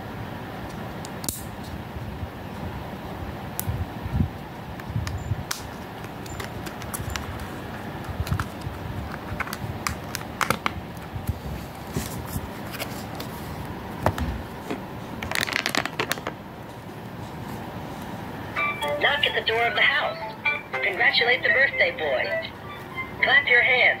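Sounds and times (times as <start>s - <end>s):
clicks and scrapes of handling: 5.5s - 13.6s
book rustling: 5.6s - 18.2s.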